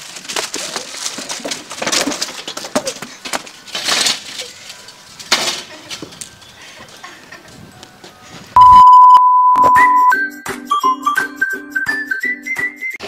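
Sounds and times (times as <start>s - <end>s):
bottles and packets clattering: 0.0s - 6.5s.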